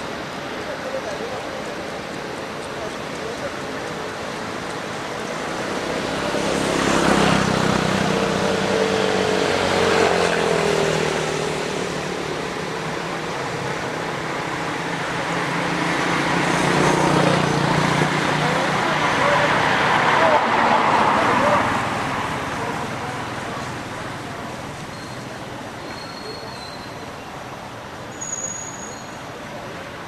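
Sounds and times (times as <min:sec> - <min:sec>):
road noise: 0:00.0 - 0:30.0
motor vehicle passing: 0:03.2 - 0:14.0.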